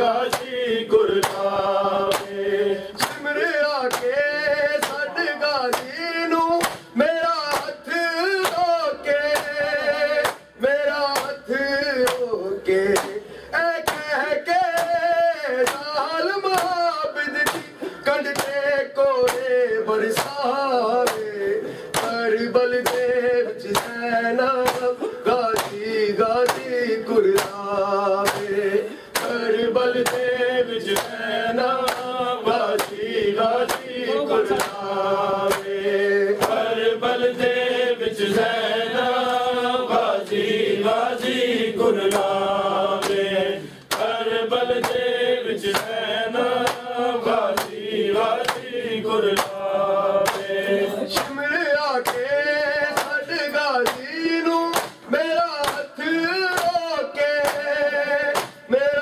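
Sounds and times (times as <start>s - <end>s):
men chanting: 0.0s - 59.0s
hands striking chests: 28.2s - 28.5s.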